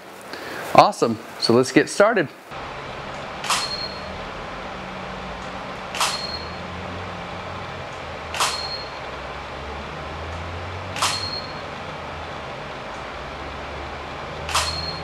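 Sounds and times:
steady low hum: 2.4 - 15.0
camera shutter clicks: 3.4 - 4.0, 5.9 - 6.5, 8.3 - 8.8, 11.0 - 11.5, 14.5 - 15.0
short high flash beep: 3.4 - 4.1, 6.0 - 6.6, 8.4 - 9.0, 11.0 - 11.6, 14.6 - 15.0.

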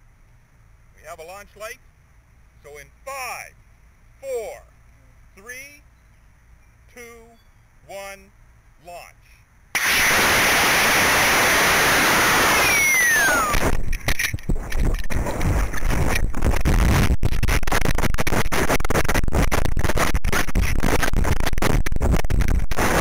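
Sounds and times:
rocket motor thrust rush: 9.8 - 21.4
gusting wind noise: 9.8 - 23.0
falling whistle: 12.0 - 13.6.

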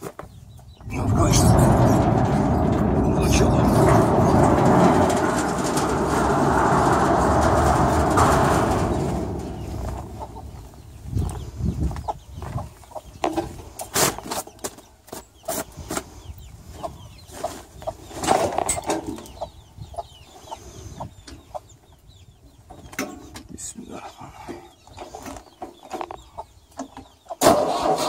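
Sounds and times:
hens clucking: 0.7 - 14.7
loud steady noise: 0.9 - 10.8.

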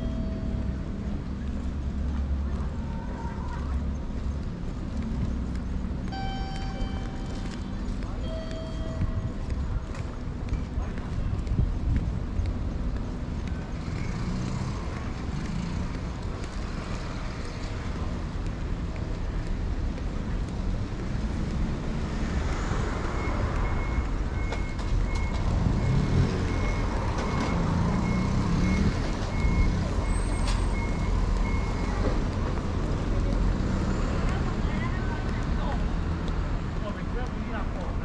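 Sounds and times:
street rumble: 0.0 - 38.0
reversing alarm beeps: 6.1 - 7.4, 23.0 - 32.0.

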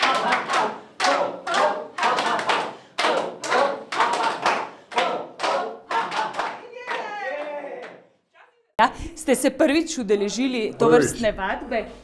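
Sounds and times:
group clapping in rhythm: 0.0 - 8.2.

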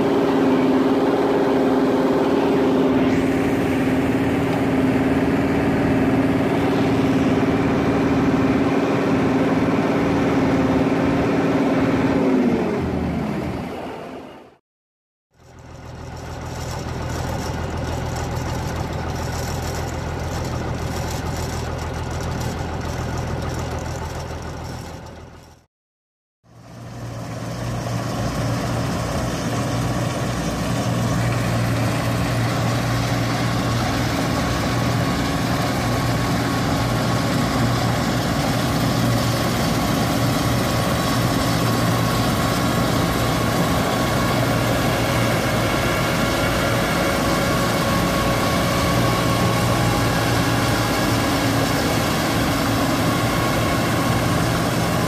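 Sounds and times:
threshing machinery running: 0.0 - 13.2, 26.8 - 55.0
diesel engine running: 0.0 - 14.6, 15.3 - 25.7, 26.5 - 55.0.

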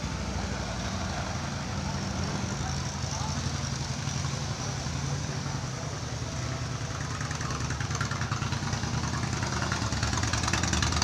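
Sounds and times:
motorcycle engine idling: 5.8 - 11.0.

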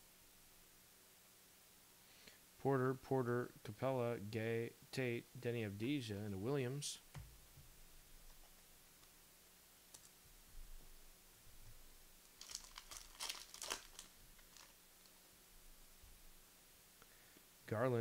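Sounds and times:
wrapper crinkling and tearing: 12.2 - 15.1.

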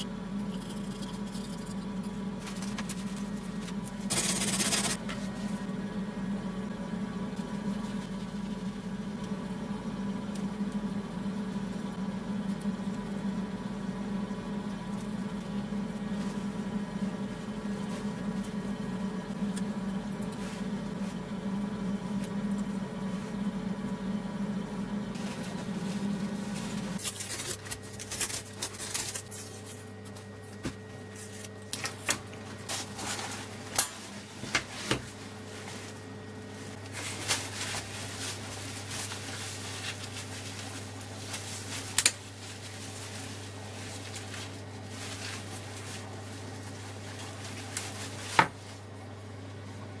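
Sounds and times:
low hum: 0.0 - 31.8.

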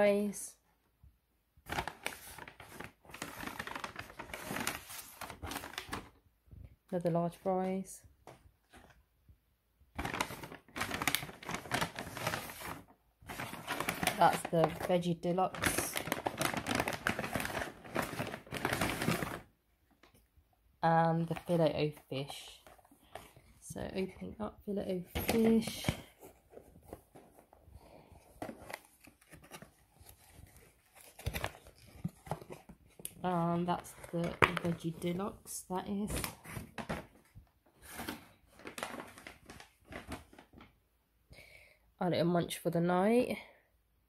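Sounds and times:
paper bag rustling and crinkling: 1.7 - 6.2, 10.0 - 19.5, 24.8 - 40.7.

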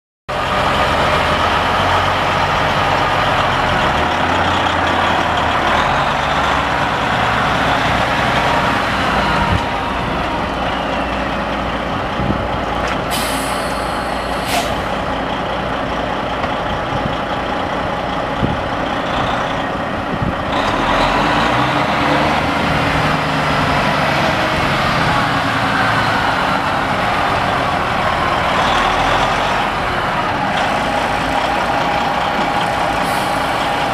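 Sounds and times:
diesel engine idling: 0.3 - 33.9
brief hiss: 13.1 - 14.9.

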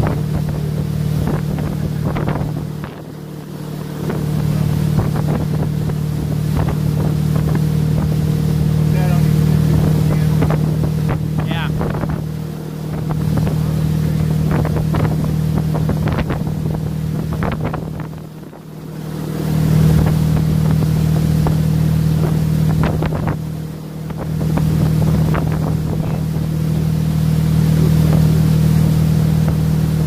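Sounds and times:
boat engine running: 0.0 - 30.0
wind on microphone: 0.0 - 30.0.

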